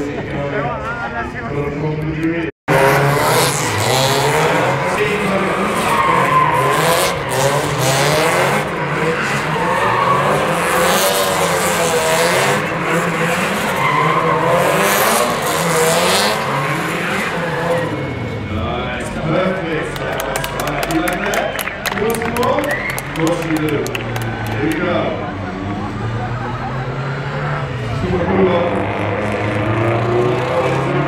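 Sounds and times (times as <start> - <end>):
car engines running hard: 0.0 - 31.0
tyres squealing: 4.4 - 18.4.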